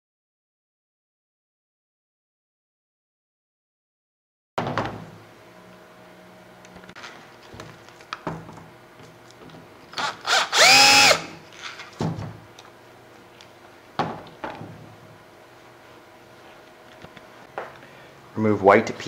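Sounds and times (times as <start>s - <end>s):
screwdriver motor whining: 9.9s - 11.4s.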